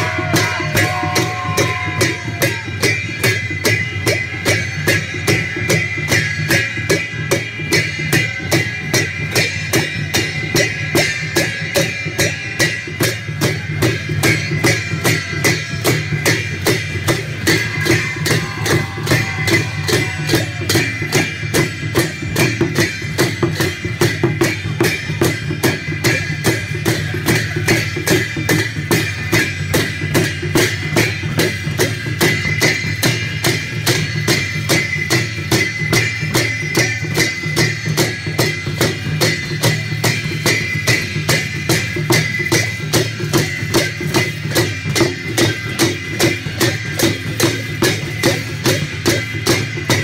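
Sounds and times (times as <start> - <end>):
steady drumbeat: 0.0 - 50.0.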